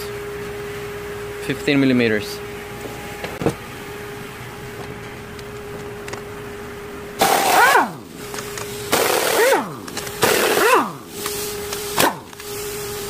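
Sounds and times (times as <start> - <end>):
air impact wrench bursts: 7.2 - 13.0.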